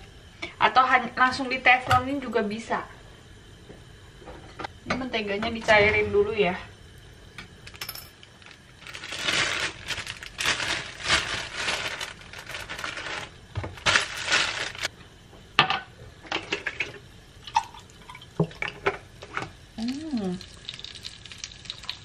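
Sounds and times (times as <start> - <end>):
rustling: 8.4 - 14.9.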